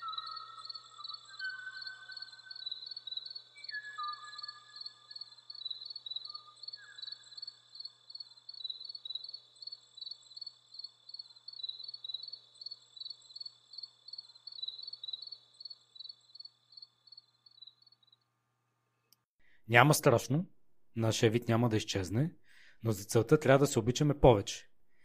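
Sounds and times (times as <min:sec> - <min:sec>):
bird whistled notes: 0:00.0 - 0:02.7, 0:03.5 - 0:05.0
insect chirping in pulses: 0:00.0 - 0:18.3.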